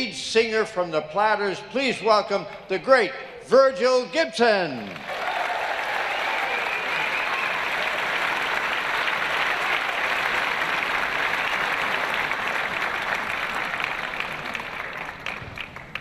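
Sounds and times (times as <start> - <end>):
audience applauding: 4.8 - 16.0.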